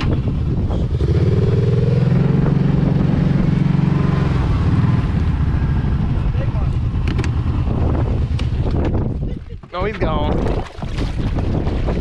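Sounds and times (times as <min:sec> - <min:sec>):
atv engine under throttle: 0:00.0 - 0:09.4.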